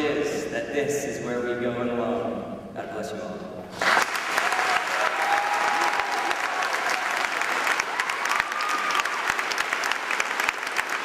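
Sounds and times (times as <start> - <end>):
large crowd applauding: 3.8 - 11.0.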